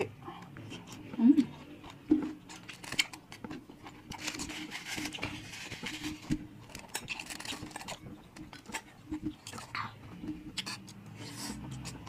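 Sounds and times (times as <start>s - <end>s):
chewing and wet smacking: 0.0s - 12.0s
crispy food crunching clicks: 6.0s - 12.0s.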